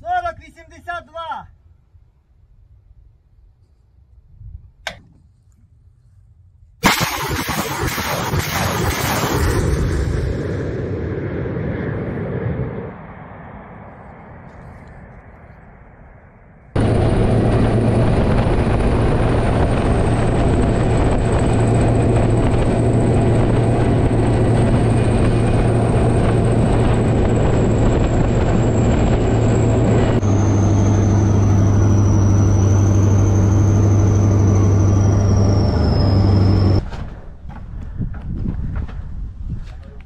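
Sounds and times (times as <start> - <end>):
high-pitched whine: 6.9 - 36.9
armoured vehicle engine hum: 8.0 - 37.6.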